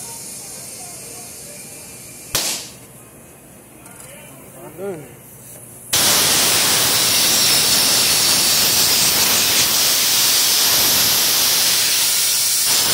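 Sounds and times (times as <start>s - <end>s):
compressed air hissing from hose: 6.0s - 12.9s.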